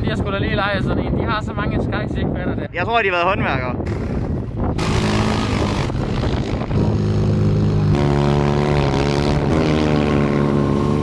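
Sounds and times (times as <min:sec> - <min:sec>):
dune buggy engines revving: 0:03.8 - 0:11.0.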